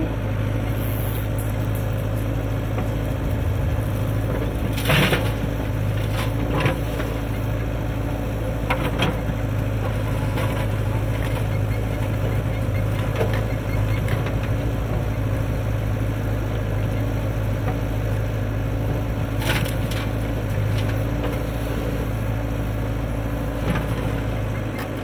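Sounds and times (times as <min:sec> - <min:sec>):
backhoe diesel engine running: 0:00.0 - 0:25.0.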